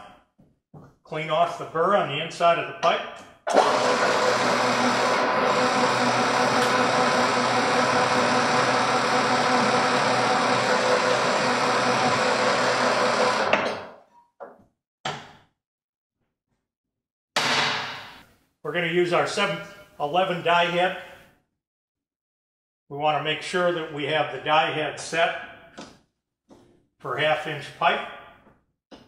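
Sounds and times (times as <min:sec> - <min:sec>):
pipe threading machine humming: 0:03.5 - 0:13.8.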